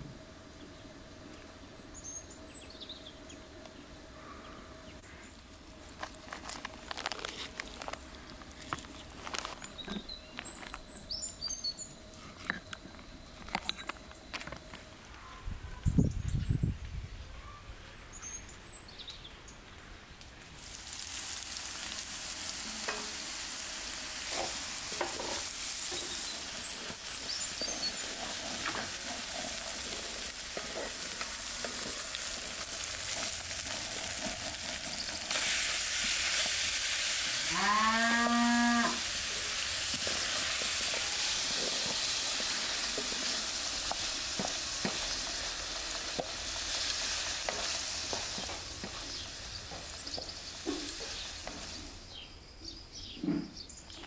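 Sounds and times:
food sizzling in a wok: 20.6 - 37.8, 38.8 - 52.1
cow mooing: 37.4 - 39.0.

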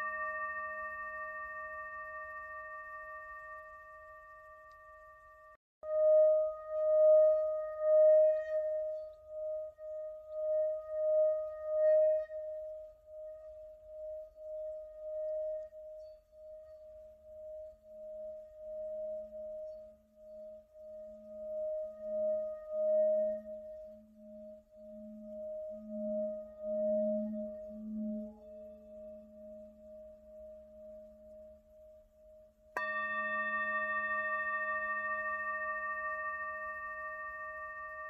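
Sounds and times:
deeper ringing tone: 0.0 - 8.2, 32.8 - 38.0
singing bowl ringing tone: 0.0 - 38.0.

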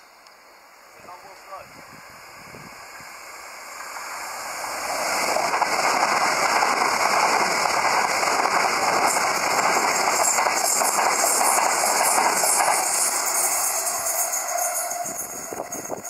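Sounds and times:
passenger train passing at speed: 0.0 - 16.0.

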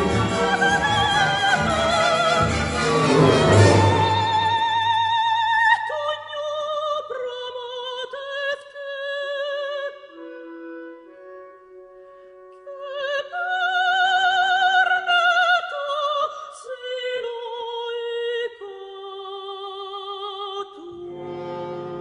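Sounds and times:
soft orchestral accompaniment: 0.0 - 6.9, 20.9 - 22.0
soprano singing with vibrato: 0.0 - 10.3, 12.6 - 21.3.

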